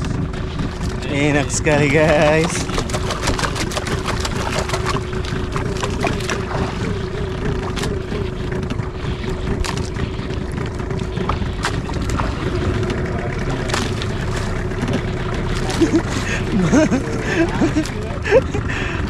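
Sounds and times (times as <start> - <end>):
boat engine idling: 0.0 - 19.0
water noise: 0.0 - 19.0
wind: 0.0 - 19.0.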